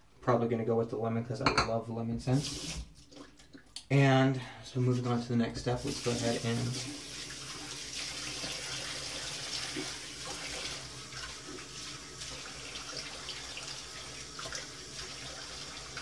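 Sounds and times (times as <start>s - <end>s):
sink tap running: 2.4s - 2.8s.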